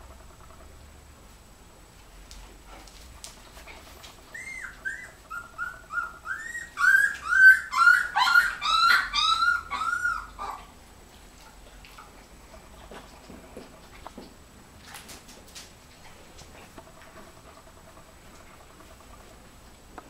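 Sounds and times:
puppies whining: 4.0 - 10.7.

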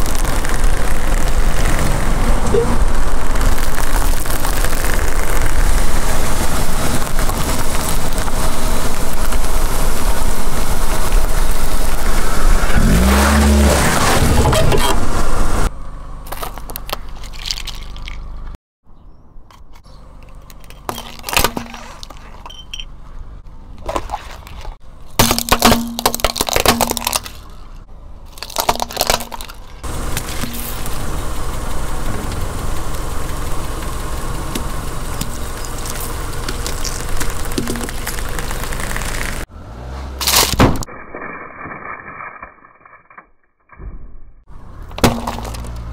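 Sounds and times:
tyre crushing small objects: 0.0 - 2.2, 3.2 - 6.2, 16.2 - 18.6, 19.5 - 22.6, 23.8 - 31.0, 34.5 - 39.5, 40.2 - 43.4, 44.9 - 45.9.

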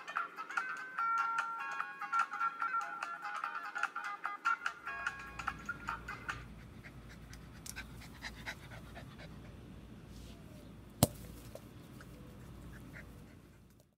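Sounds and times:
dog panting: 6.2 - 9.8, 12.0 - 13.9.

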